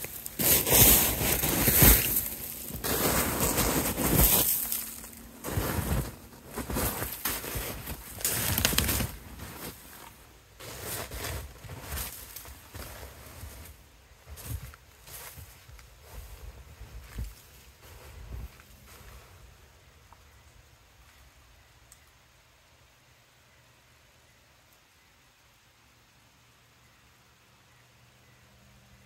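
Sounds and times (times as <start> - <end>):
rustling and scuffing: 0.0 - 19.4.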